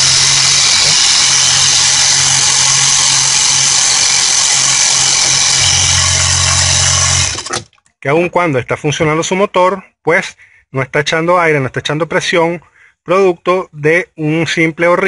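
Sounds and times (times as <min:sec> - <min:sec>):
air compressor humming and hissing: 0:00.0 - 0:07.7.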